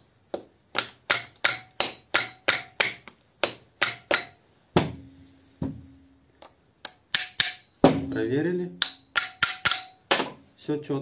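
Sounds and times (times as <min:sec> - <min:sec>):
small hammer tapping metal: 0:00.7 - 0:04.4, 0:06.8 - 0:08.2, 0:08.8 - 0:10.3
heavier hammer knocks with ring: 0:07.8 - 0:08.2.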